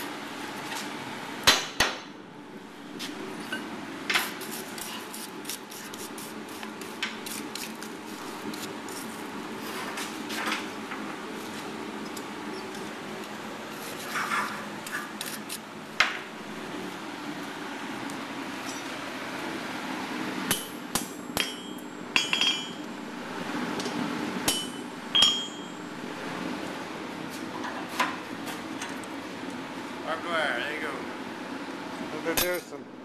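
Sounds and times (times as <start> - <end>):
low hum: 20.7 - 27.0.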